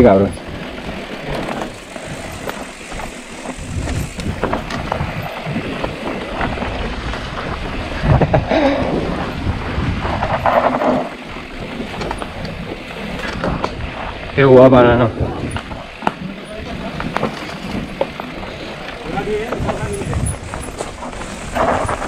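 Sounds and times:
bike rattling over bumps: 0:00.0 - 0:22.0
tyres on dirt and gravel: 0:00.0 - 0:22.0
wind buffeting microphone: 0:00.0 - 0:22.0.

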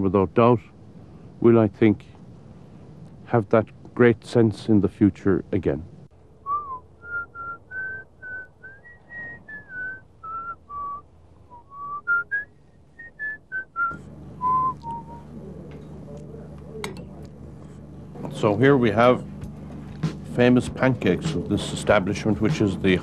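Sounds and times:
low room hum: 0:00.0 - 0:23.0
man whistling a tune: 0:06.4 - 0:15.3.

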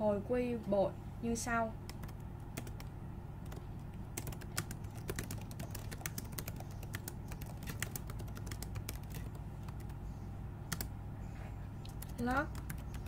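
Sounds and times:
keyboard typing: 0:01.9 - 0:10.0, 0:10.7 - 0:10.9, 0:11.8 - 0:13.0.

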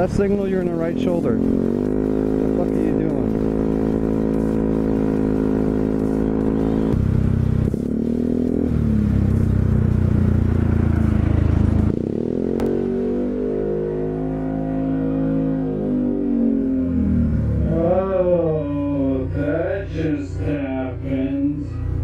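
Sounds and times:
scooter engine running: 0:00.0 - 0:12.7.

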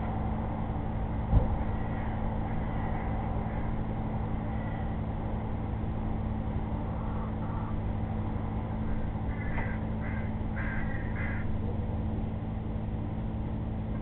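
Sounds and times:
low hum and hiss: 0:00.0 - 0:14.0
bird calls: 0:06.9 - 0:07.8, 0:08.9 - 0:11.5.

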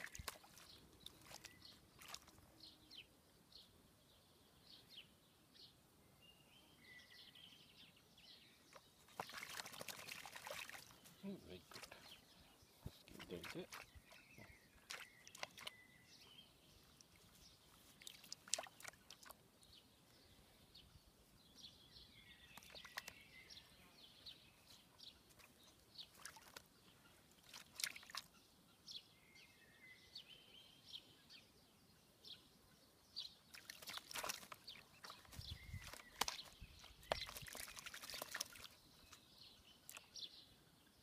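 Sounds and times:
bird splashing in water: 0:00.0 - 0:02.4, 0:08.7 - 0:12.2, 0:12.8 - 0:16.0, 0:16.8 - 0:19.4, 0:22.4 - 0:23.4, 0:25.2 - 0:28.4, 0:33.4 - 0:39.2.

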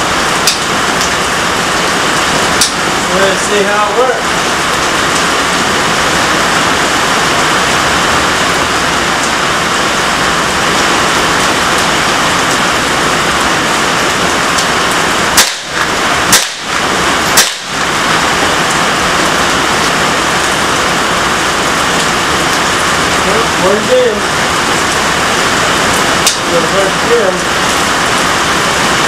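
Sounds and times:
heavy rain hissing: 0:00.0 - 0:29.0
rifle shots: 0:15.3 - 0:18.0.

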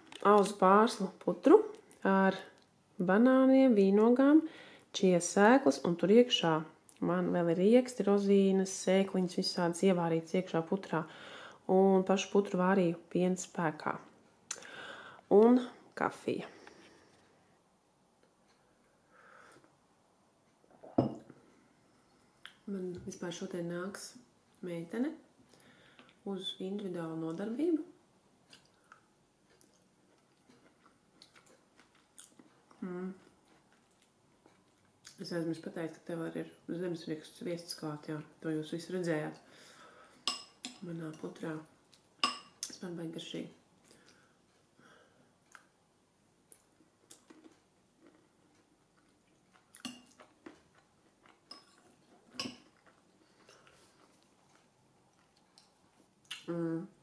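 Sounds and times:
person chewing food: 0:28.4 - 0:35.2, 0:46.5 - 0:56.5.

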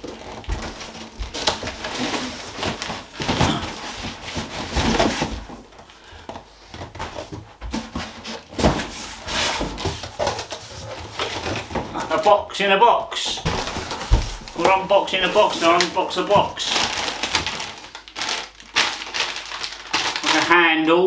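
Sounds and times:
cardboard boxes scraping and rustling: 0:00.1 - 0:05.6, 0:06.8 - 0:12.0.

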